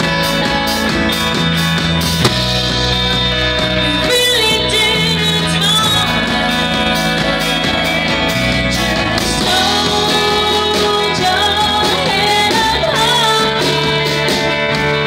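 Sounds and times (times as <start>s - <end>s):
drums: 0.0s - 15.0s
electric bass: 0.0s - 15.0s
woman singing: 3.8s - 7.6s, 9.2s - 14.4s.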